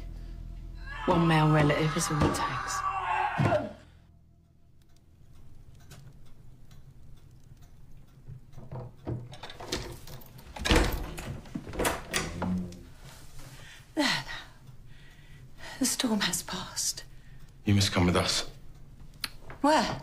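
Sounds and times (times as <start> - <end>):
faint clicks: 4.4 - 9.0.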